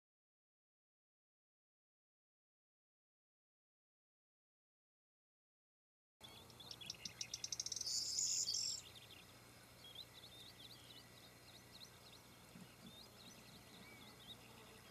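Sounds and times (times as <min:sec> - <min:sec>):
small bird singing: 0:06.2 - 0:14.9.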